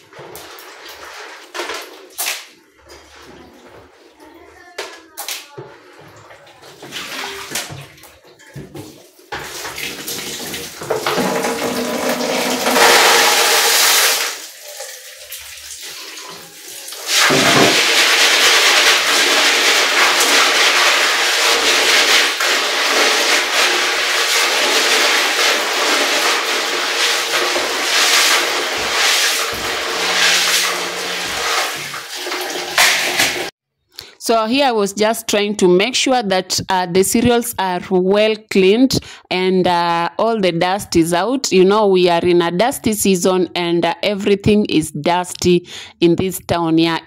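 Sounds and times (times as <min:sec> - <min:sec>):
water splashing in sink: 0:00.0 - 0:33.6
tap running into plastic basin: 0:07.5 - 0:15.5, 0:17.2 - 0:33.5.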